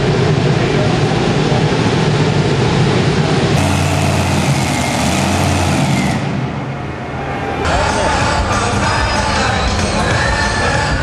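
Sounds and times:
tractor engine idling: 0.0 - 7.0.

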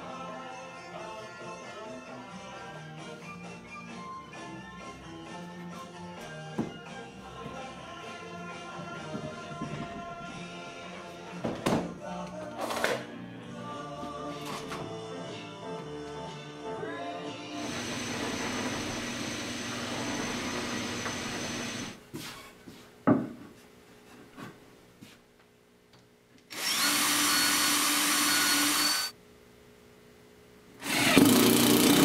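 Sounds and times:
cordless drill drilling wood: 17.6 - 22.0, 26.5 - 29.1, 30.8 - 32.0.

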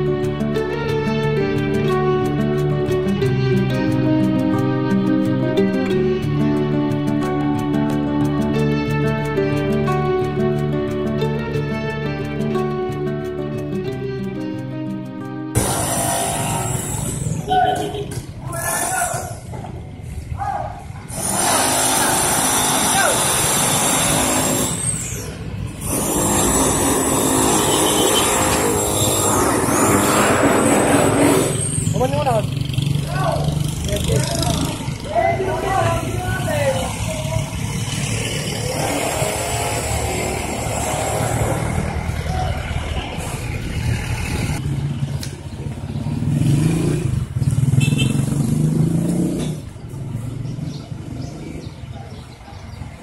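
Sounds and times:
road noise: 0.0 - 53.0
vehicle engine running: 25.5 - 51.4.

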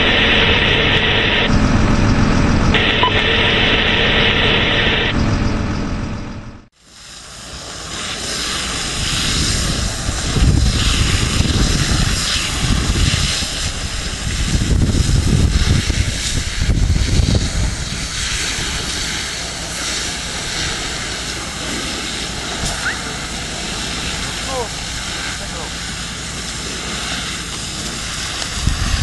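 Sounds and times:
low rumbling surges: 0.0 - 29.0
fire hose water jets spraying: 6.7 - 29.0.

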